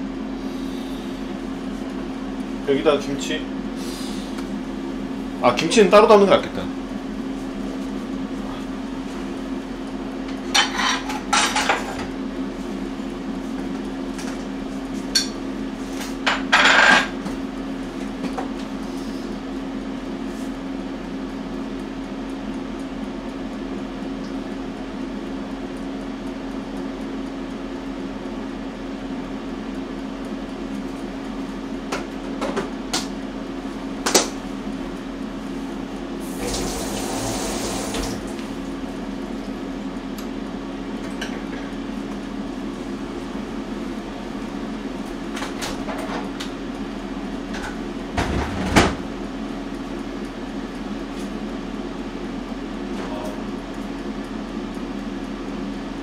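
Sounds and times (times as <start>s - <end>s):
dishes and utensils clattering: 10.6s - 11.8s.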